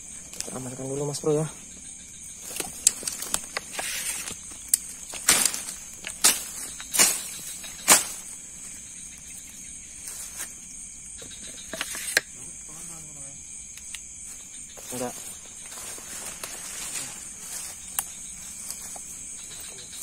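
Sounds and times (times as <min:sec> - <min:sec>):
crickets and night insects trilling: 0:00.0 - 0:20.0
sharp handling noises: 0:02.4 - 0:10.6, 0:11.2 - 0:12.3.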